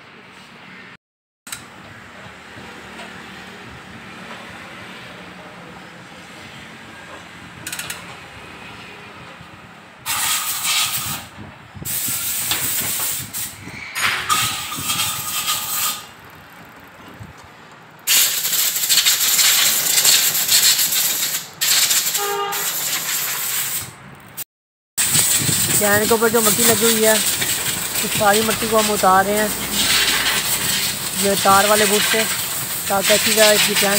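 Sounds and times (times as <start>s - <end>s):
compressed air blow gun hissing: 10.1s - 13.6s, 14.3s - 16.1s, 18.1s - 24.0s, 25.0s - 33.9s.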